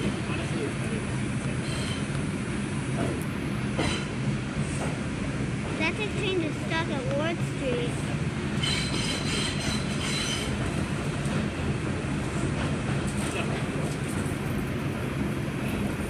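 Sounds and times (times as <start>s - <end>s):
subway car rumbling in tunnel: 0.0s - 16.0s.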